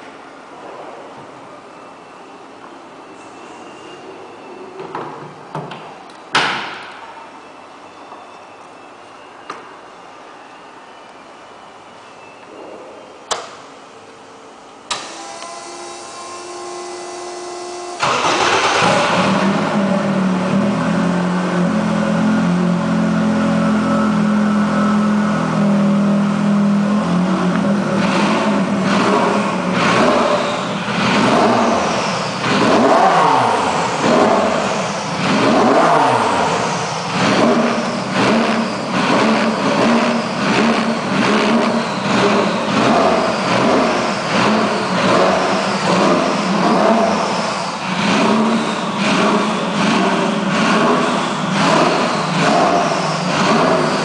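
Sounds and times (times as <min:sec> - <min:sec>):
electrical starter whine: 0:14.9 - 0:20.4
race car engine idling and revving: 0:14.9 - 0:54.0.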